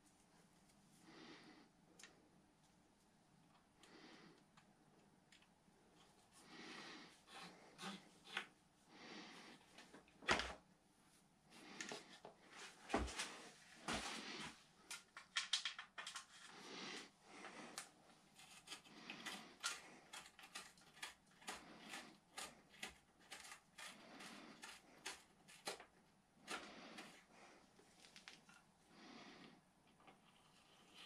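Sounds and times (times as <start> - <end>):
hands handling bicycle cables: 14.8 - 16.5, 27.8 - 28.7.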